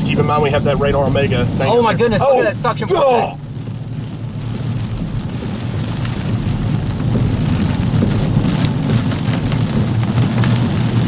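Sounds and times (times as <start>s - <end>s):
car road noise: 0.0s - 11.0s
light rain tapping: 0.0s - 11.0s
storm wind rumble: 0.0s - 11.0s.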